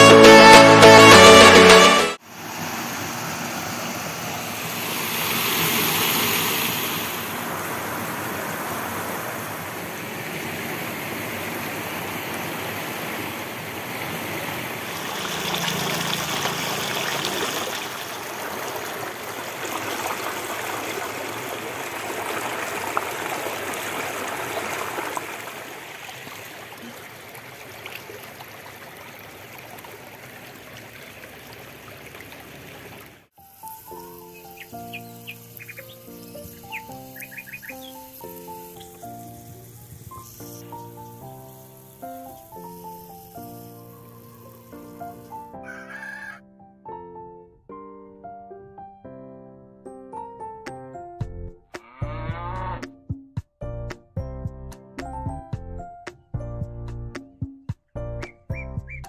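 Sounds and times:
stream water rushing over rocks: 0.2 - 45.4.

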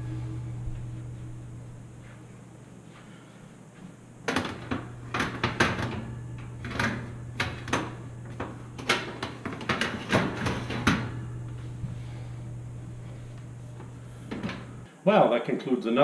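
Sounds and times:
metal oven racks clattering: 4.3 - 14.9.

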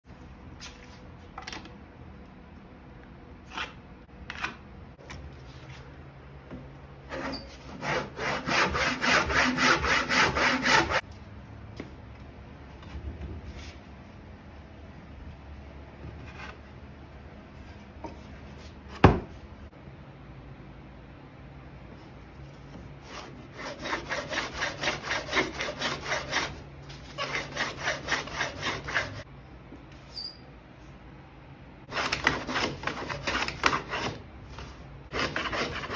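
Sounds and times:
hand saw cutting wood: 7.1 - 11.0, 23.1 - 29.2, 31.9 - 34.2, 35.1 - 35.9
knocks and scrapes of a board: 16.0 - 16.7.

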